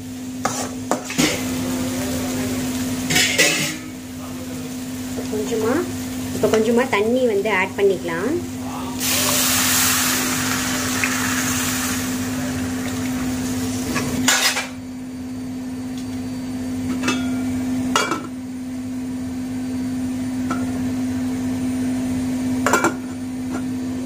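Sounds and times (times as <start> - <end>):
water hissing in hot pan: 0.0 - 14.8.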